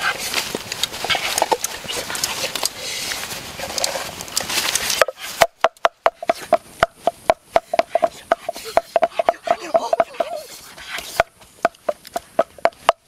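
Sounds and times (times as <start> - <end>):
wooden pestle pounding in mortar: 5.0 - 10.4, 11.0 - 13.0.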